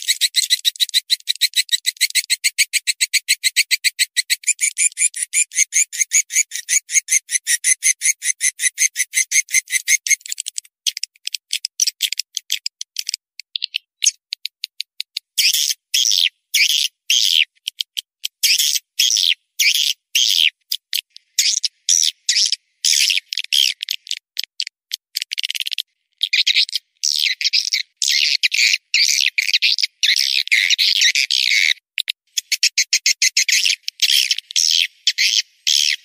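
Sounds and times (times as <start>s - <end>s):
sparse clicks: 10.1s - 15.3s.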